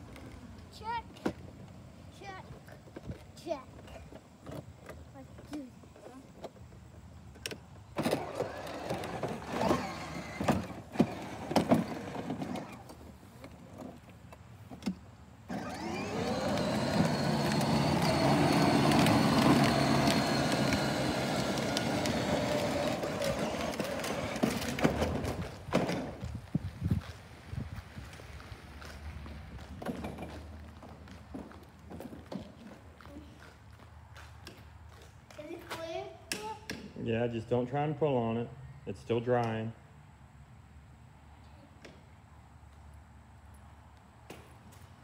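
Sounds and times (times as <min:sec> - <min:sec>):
wheels rumbling on concrete: 0:00.0 - 0:36.2
electric motor whine: 0:15.5 - 0:24.8
knocks and clatters: 0:29.7 - 0:32.7.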